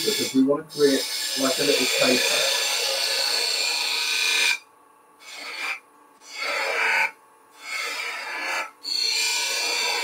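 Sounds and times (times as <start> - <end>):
chisel scraping spinning wood: 5.2 - 10.0.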